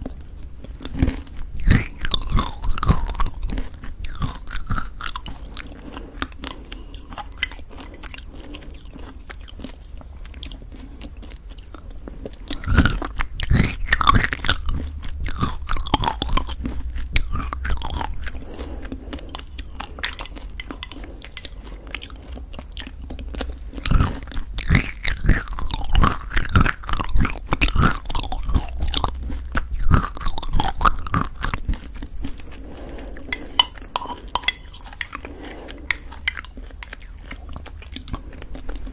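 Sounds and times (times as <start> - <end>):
crunchy chewing: 0.0 - 38.9
wooden spoon scraping glass: 19.3 - 22.3, 32.8 - 37.0.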